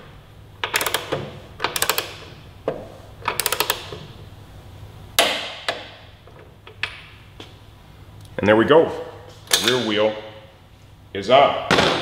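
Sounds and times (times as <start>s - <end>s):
torque wrench ratchet clicks: 0.7s - 1.1s, 1.7s - 2.2s, 3.3s - 3.9s.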